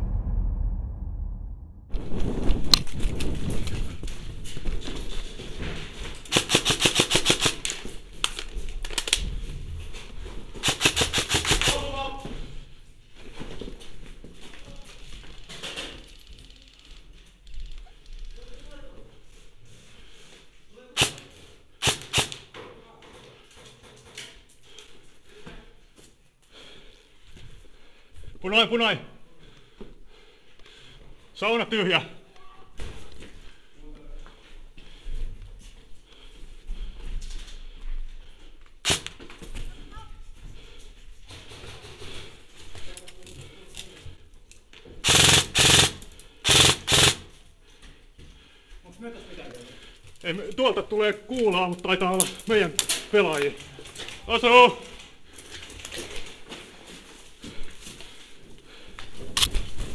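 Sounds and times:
airsoft rifle full-auto bursts: 0:06.3 - 0:07.8, 0:10.6 - 0:11.8, 0:21.8 - 0:22.4, 0:38.8 - 0:39.2, 0:45.0 - 0:47.3
airsoft gun shots: 0:38.8 - 0:39.2, 0:45.0 - 0:47.2.

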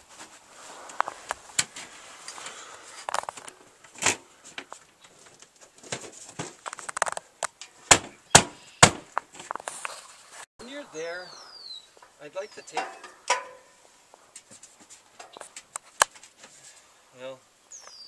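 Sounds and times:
shuffling steps: 0:00.0 - 0:07.0, 0:09.2 - 0:10.5, 0:13.6 - 0:16.9.

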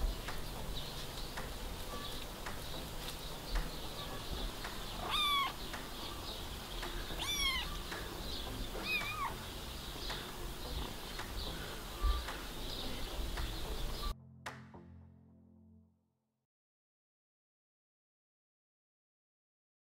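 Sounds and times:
kitten meowing: 0:05.0 - 0:05.6, 0:07.1 - 0:07.9, 0:08.8 - 0:09.4.

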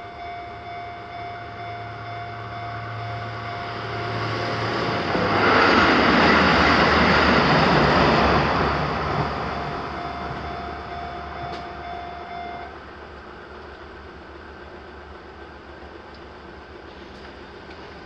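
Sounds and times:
level crossing warning tone: 0:00.0 - 0:12.8
diesel railcar passing: 0:00.0 - 0:18.0.

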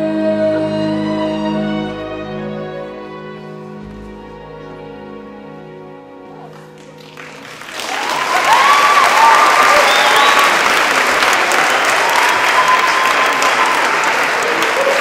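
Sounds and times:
audience applause: 0:06.5 - 0:15.0
audience cheering: 0:07.4 - 0:15.0.

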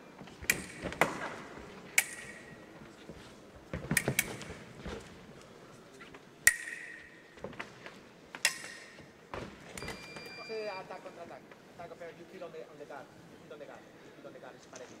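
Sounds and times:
fencing blades clashing: 0:00.4 - 0:02.9, 0:03.7 - 0:04.7, 0:06.4 - 0:07.4, 0:08.3 - 0:10.4.

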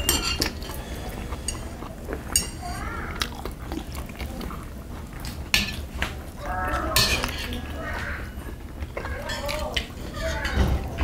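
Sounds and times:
metal chopsticks clinking on bowls: 0:00.0 - 0:00.8, 0:02.3 - 0:02.6, 0:06.9 - 0:07.7, 0:09.1 - 0:10.6
chewing: 0:00.0 - 0:11.0.

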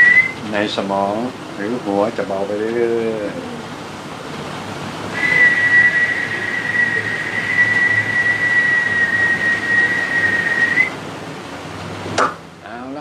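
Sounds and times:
person whistling high note: 0:00.0 - 0:00.4, 0:05.2 - 0:10.9.

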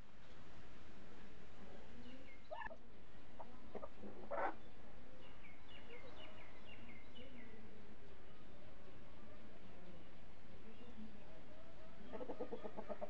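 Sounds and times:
chickens clucking: 0:02.2 - 0:02.8, 0:03.4 - 0:04.7, 0:12.0 - 0:13.0.

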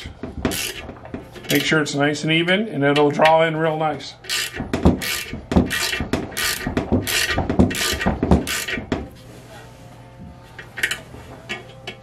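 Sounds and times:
ratchet wrench clicking: 0:00.5 - 0:00.8, 0:04.3 - 0:08.8.

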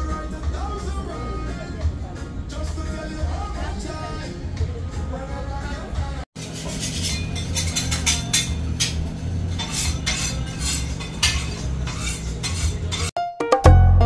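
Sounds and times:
metal utensils clanking on steel: 0:06.4 - 0:13.1.

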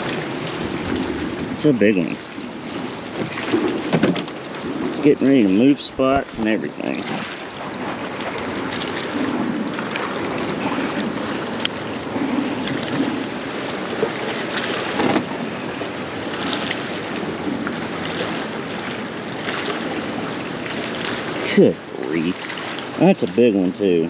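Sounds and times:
wind buffeting microphone: 0:00.0 - 0:23.0
water lapping against a hull: 0:00.0 - 0:24.0
handling clicks and knocks: 0:03.9 - 0:04.4.

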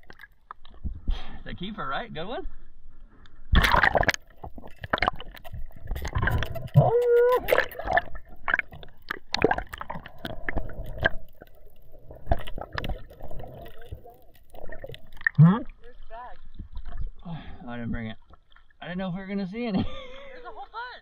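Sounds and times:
water splashing and gurgling: 0:00.0 - 0:01.0, 0:03.5 - 0:18.9
sharp clicks and crackles: 0:03.2 - 0:16.0.

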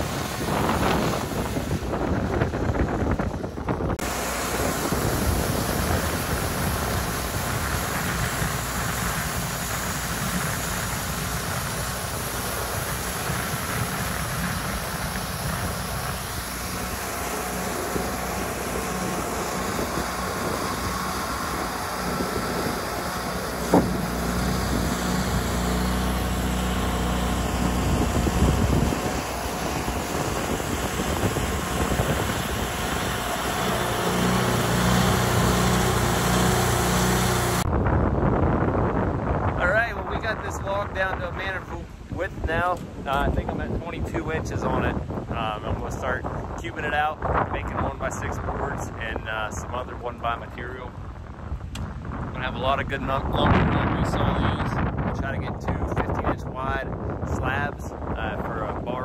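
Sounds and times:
sawmill engine running: 0:00.0 - 0:37.7
wind noise on microphone: 0:00.0 - 0:59.0.

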